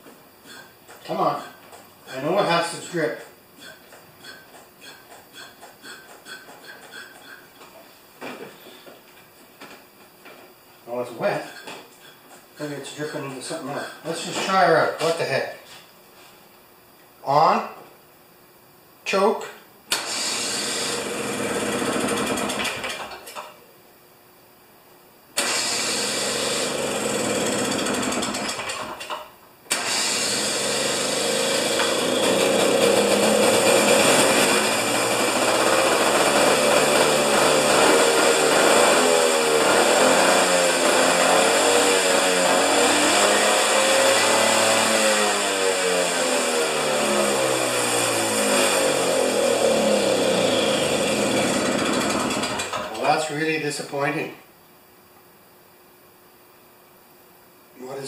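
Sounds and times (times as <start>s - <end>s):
two-stroke engine running unevenly: 26.0s - 28.9s, 29.8s - 41.4s, 50.2s - 52.9s.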